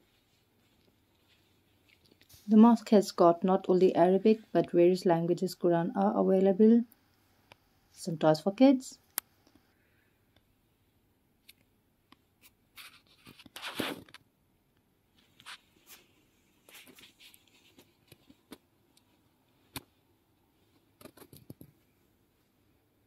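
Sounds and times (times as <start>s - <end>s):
faint rustling and scraping: 0.0s - 3.0s, 12.4s - 14.2s, 15.1s - 22.9s.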